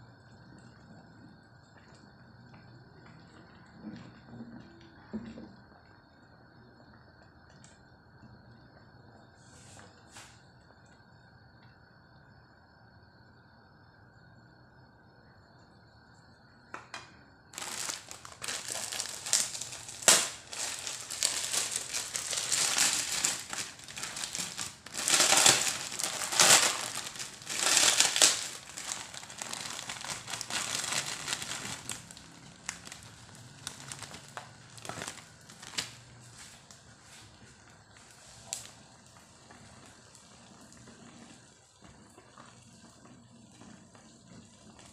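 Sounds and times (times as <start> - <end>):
pork cracklings crunching: 17.5 - 36.0.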